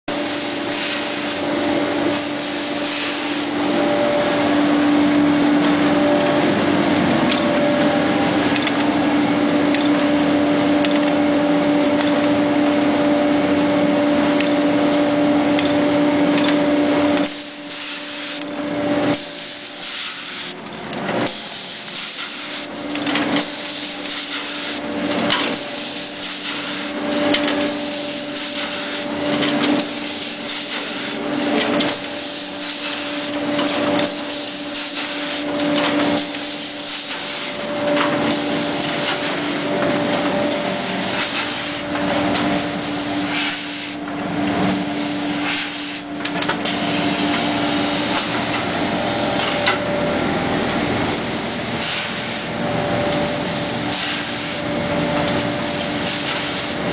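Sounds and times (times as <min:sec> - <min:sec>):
broad machine hiss: 0:00.1 - 0:09.6, 0:23.4 - 0:31.3, 0:31.9 - 0:44.0, 0:44.7 - 0:49.6, 0:50.3 - 0:52.6, 0:53.2 - 0:54.7, 0:55.3 - 0:56.9
motor hum: 0:00.1 - 0:17.3, 0:24.8 - 0:43.4.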